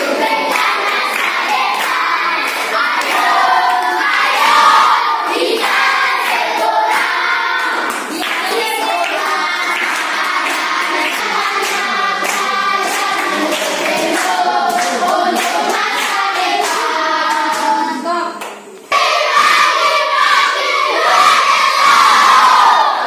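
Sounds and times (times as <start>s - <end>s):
hand clapping: 0.0s - 3.9s, 5.6s - 17.8s
children singing: 0.0s - 23.0s.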